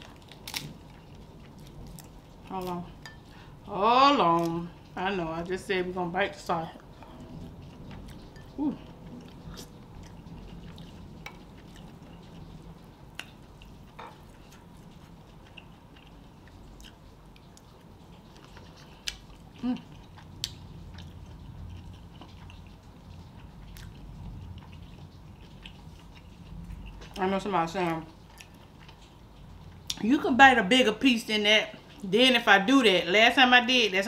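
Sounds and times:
sausage snapping: 0.3 - 0.7
wet chewing with smacks: 6.7 - 30.2.

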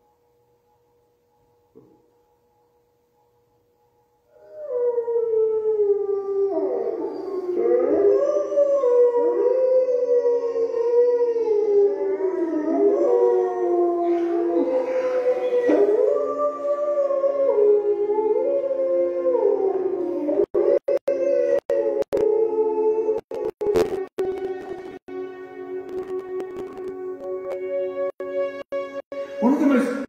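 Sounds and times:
wolves howling: 4.3 - 24.4.

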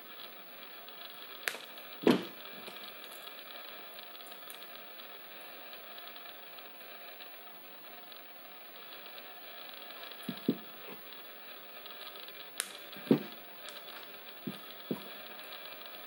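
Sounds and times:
pliers knocking on table: 13.0 - 13.4.

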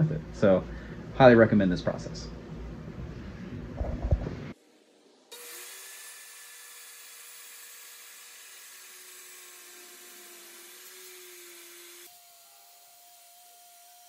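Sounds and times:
circular saw cutting wood: 4.6 - 14.0.

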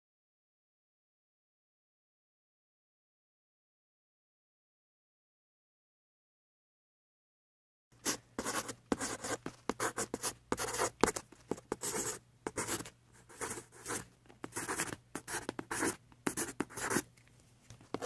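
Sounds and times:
marker scratching on paper: 8.0 - 17.0.

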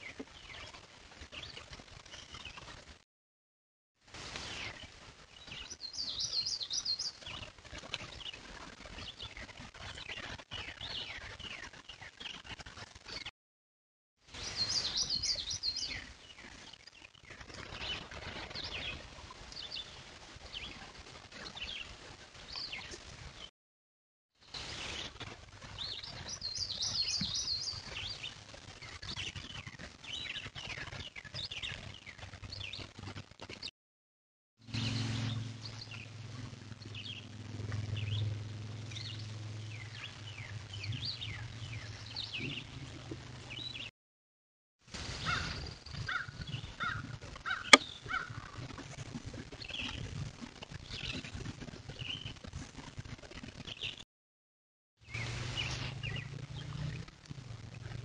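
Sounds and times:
birds chirping and singing: 5.5 - 7.4, 14.4 - 16.1, 25.8 - 28.3, 38.9 - 43.9.

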